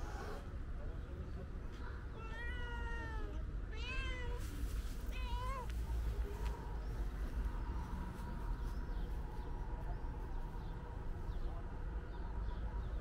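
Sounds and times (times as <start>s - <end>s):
steady low rumble: 4.4s - 12.9s.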